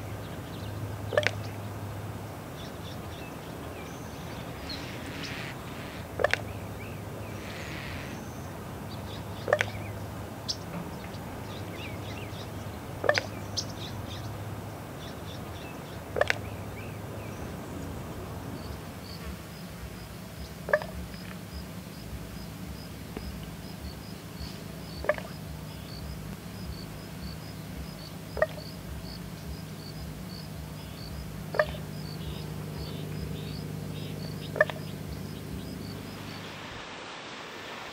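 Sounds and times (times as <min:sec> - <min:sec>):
ravens calling: 0:00.0 - 0:21.4, 0:23.8 - 0:36.6
faint high chirping: 0:02.5 - 0:17.9.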